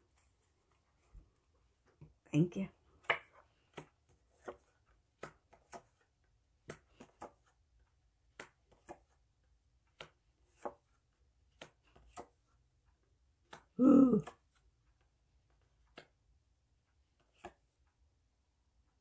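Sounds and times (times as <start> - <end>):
cards clicking and tapping on table: 3.0 - 12.5, 13.3 - 14.7, 15.6 - 16.3, 17.1 - 17.8.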